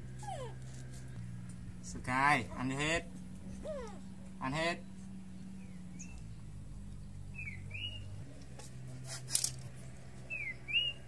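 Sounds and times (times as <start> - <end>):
low steady hum: 0.0 - 11.0
scraping rustle: 0.1 - 1.6, 8.2 - 10.3.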